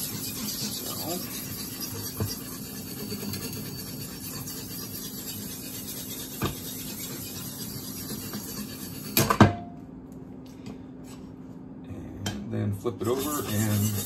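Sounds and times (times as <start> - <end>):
knife scraping on sharpening plate: 0.0 - 9.4, 13.0 - 14.0.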